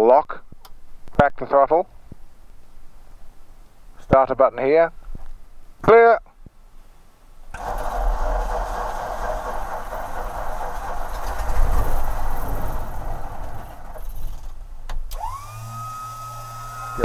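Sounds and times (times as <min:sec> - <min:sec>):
aircraft engine starter cranking: 0:07.5 - 0:15.8.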